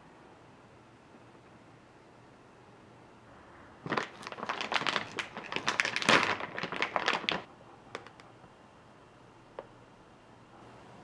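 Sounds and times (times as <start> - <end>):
plastic bag crinkling: 3.8 - 8.2.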